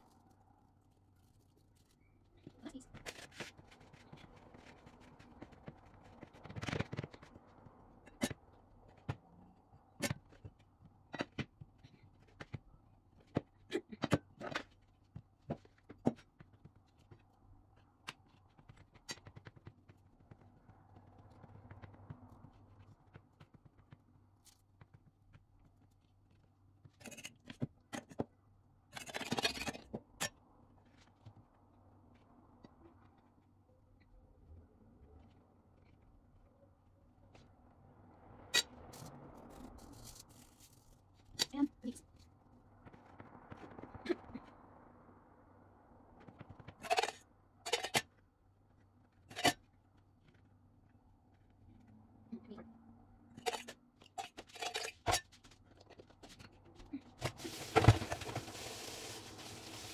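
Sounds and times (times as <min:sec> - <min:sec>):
hands working dough on board: 0:02.4 - 0:28.4.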